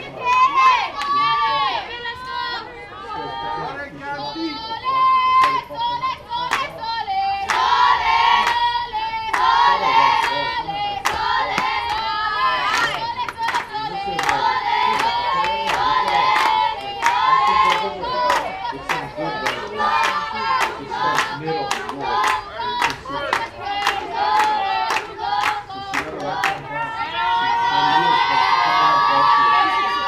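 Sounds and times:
group of young voices chanting: 0.0s - 30.0s
sharp hand claps: 12.7s - 26.6s.

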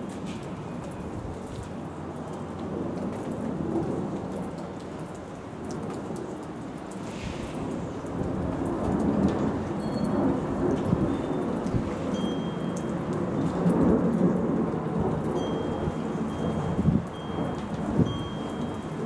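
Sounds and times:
steady rain pattering: 0.0s - 19.0s
rolling thunder: 7.0s - 12.1s.

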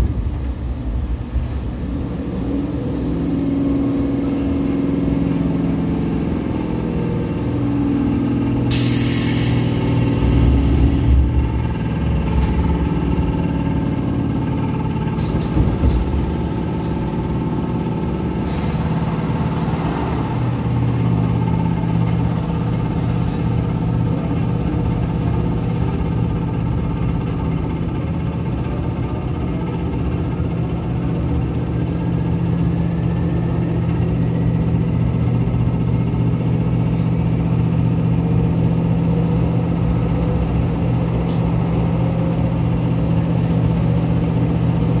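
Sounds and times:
train motor hum: 0.0s - 45.0s
loud hiss: 8.7s - 11.4s.

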